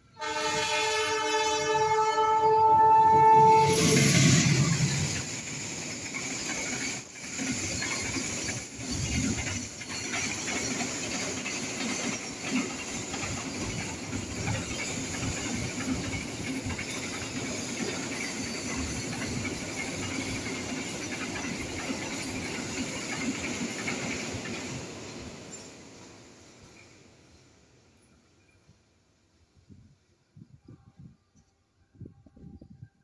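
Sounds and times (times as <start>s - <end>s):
freight train wheels rumbling on rails: 0.0s - 28.8s.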